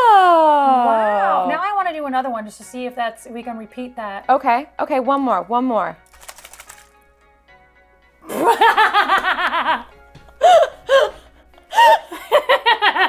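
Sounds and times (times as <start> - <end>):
faint background music: 0.0 - 13.0
women laughing: 8.3 - 13.0.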